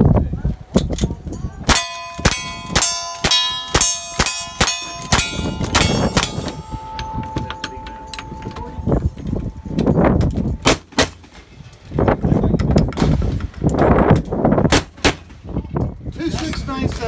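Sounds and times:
bullet clanging steel plate: 0.8s - 11.4s
steady ringing tone: 1.3s - 10.7s
rifle shots: 10.6s - 11.4s.

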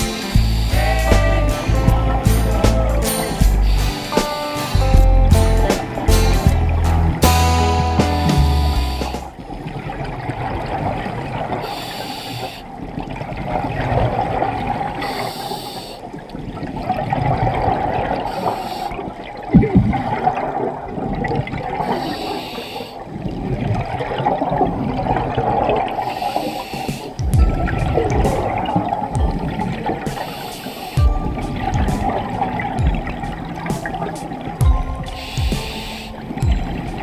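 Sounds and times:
regulator bubbling hiss: 0.0s - 9.4s, 11.5s - 12.9s, 14.8s - 16.3s, 18.1s - 20.3s, 21.6s - 23.3s, 25.5s - 37.0s
watery rumble: 0.0s - 11.7s, 12.6s - 15.1s, 16.1s - 22.1s, 23.0s - 37.0s.

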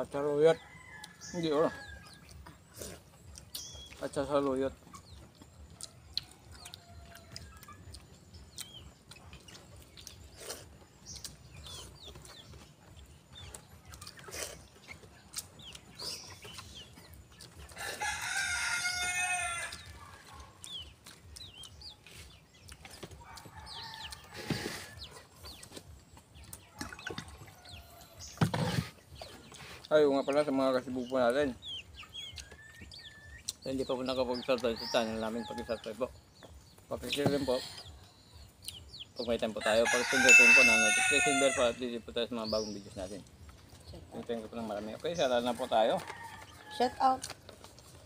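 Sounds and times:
rooster crowing: 17.8s - 20.0s, 39.6s - 41.8s.

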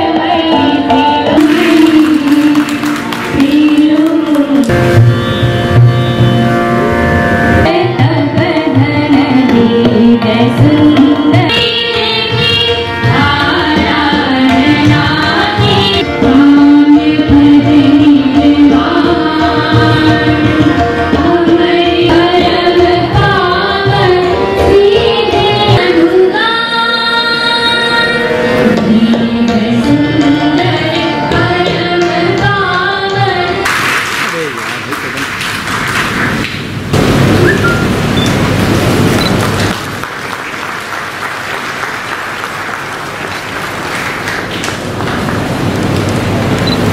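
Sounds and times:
tabla: 0.0s - 36.5s
ornamented classical singing: 7.7s - 33.6s.

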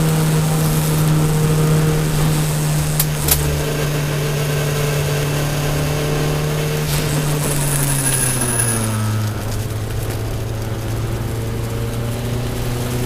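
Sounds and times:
car engine at high revs: 0.0s - 13.0s
road noise: 0.0s - 13.0s.

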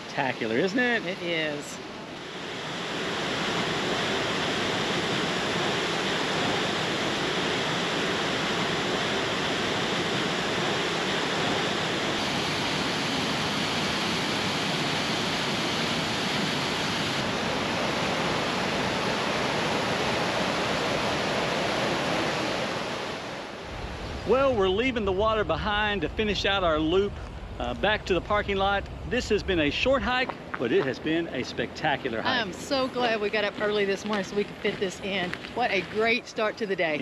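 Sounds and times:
river water rushing: 0.0s - 24.3s.

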